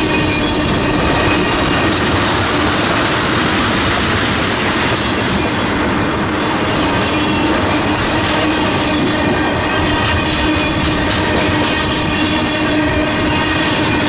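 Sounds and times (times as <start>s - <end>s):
thin steady wheel squeal: 0.0s - 2.1s, 6.2s - 14.0s
freight train rolling past: 0.0s - 14.0s.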